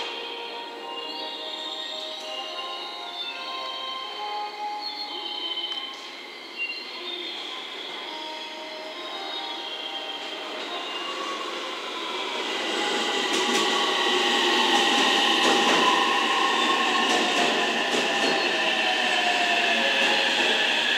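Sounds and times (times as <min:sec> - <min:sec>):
train wheels rumbling: 0:11.4 - 0:20.9.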